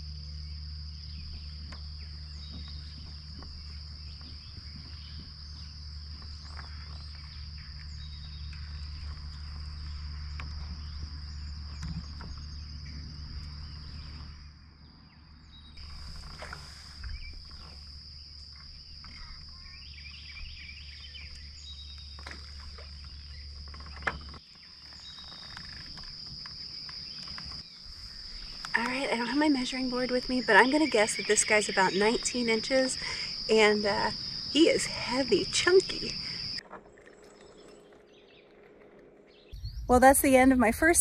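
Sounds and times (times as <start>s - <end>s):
crickets chirping chorus: 0.0s - 41.0s
kayak knocks and clicks: 21.2s - 24.5s
low rumble: 39.5s - 41.0s.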